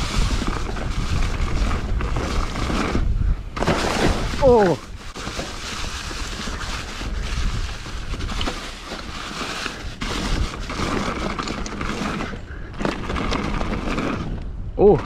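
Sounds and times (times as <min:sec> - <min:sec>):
wind and tyre noise: 0:00.0 - 0:15.0
bike clattering over ground: 0:03.6 - 0:06.9.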